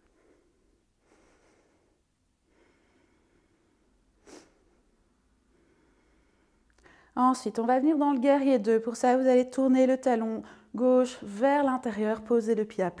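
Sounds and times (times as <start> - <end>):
faint breathing: 0.0 - 7.2.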